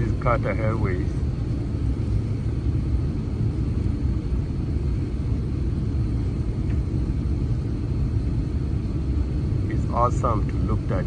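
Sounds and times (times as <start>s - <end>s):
airliner cabin rumble: 0.0s - 11.0s.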